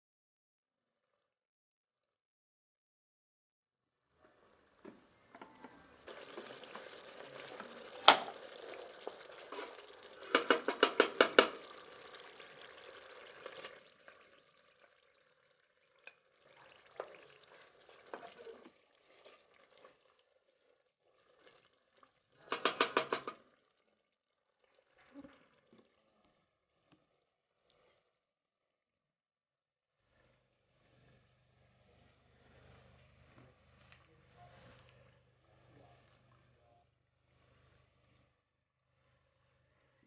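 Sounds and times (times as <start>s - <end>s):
wooden spoon stirring in metal pot: 4.4s - 15.1s, 15.9s - 28.3s.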